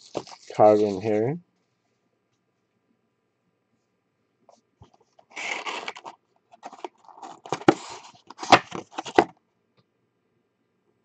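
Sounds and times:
cardboard box rustling: 0:00.0 - 0:01.1, 0:05.2 - 0:09.3.

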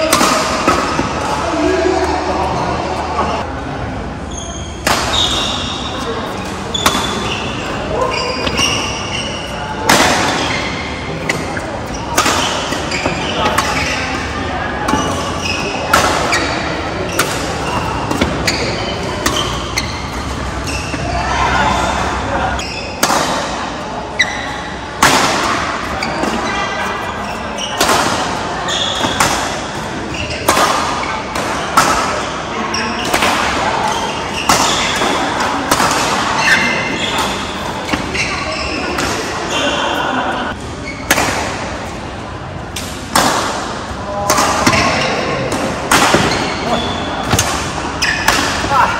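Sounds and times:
racket hitting shuttlecock: 0:00.0 - 0:01.3, 0:04.8 - 0:21.2, 0:21.8 - 0:23.6, 0:25.0 - 0:26.5, 0:27.6 - 0:32.4, 0:33.0 - 0:39.4, 0:40.9 - 0:41.7, 0:42.7 - 0:48.9
shoes squeaking on court: 0:04.2 - 0:23.0, 0:25.6 - 0:31.3, 0:32.1 - 0:41.1, 0:46.1 - 0:48.8.

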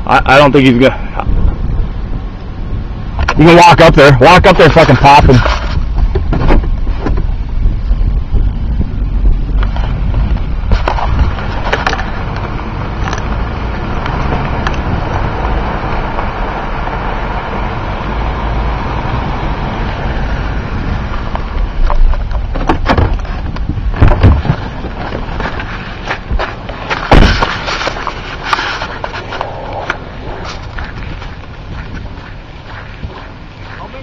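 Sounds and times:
truck rumble from inside cab: 0:00.0 - 0:34.0
sharp knocks: 0:26.2 - 0:28.0.

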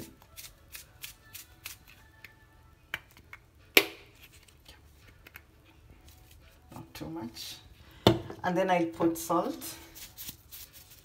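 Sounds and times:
faint background music: 0:00.0 - 0:11.0
powder shaken from container: 0:09.5 - 0:11.0.

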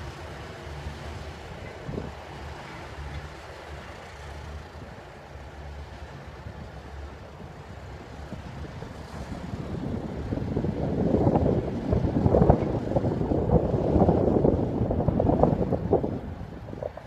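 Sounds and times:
distant diesel locomotive humming: 0:00.0 - 0:17.0
wind buffeting microphone: 0:00.0 - 0:17.0.

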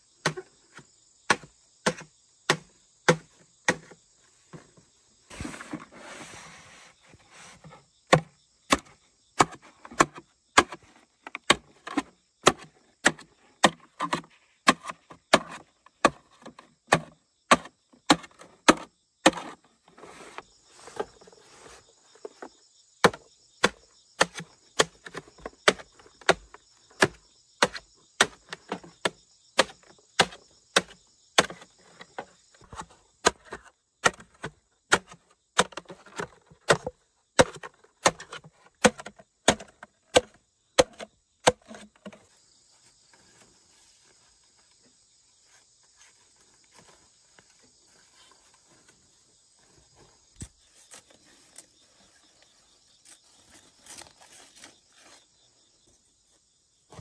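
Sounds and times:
machete chopping bamboo: 0:01.3 - 0:04.0, 0:08.1 - 0:10.8, 0:11.4 - 0:19.6, 0:23.0 - 0:31.7, 0:32.7 - 0:42.2.

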